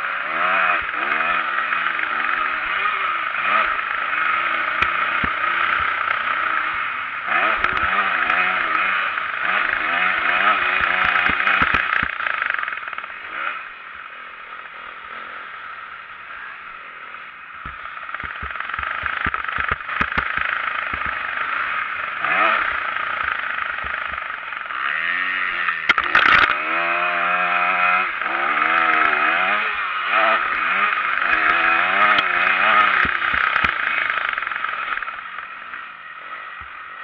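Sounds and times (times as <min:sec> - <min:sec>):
motocross bike engine revving: 0:00.0 - 0:37.0
sharp knocks: 0:17.6 - 0:21.2.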